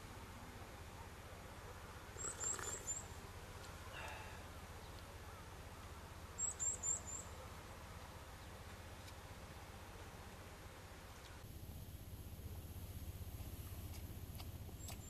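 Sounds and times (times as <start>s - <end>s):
faint low hum: 0.0s - 15.0s
small bird calling: 2.1s - 3.2s, 6.4s - 7.5s.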